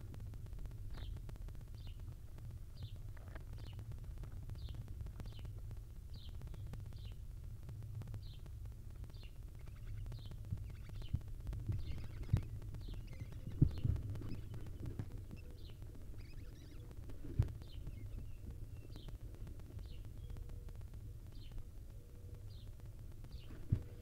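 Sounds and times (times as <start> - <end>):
steady low hum: 0.0 - 24.0
faint bird chirps: 6.1 - 7.2, 8.2 - 8.5, 9.1 - 24.0.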